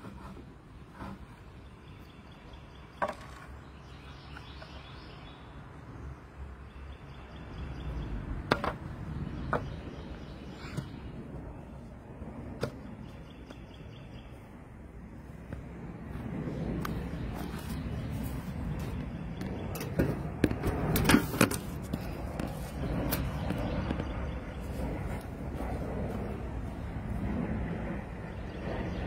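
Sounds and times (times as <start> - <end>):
steady low rumble: 0.5 - 29.0.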